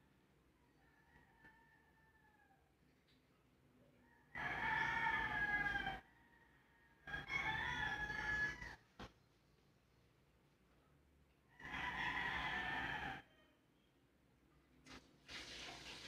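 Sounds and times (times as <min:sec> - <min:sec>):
rooster crowing: 0:00.7 - 0:02.7, 0:04.1 - 0:08.9, 0:11.5 - 0:13.6.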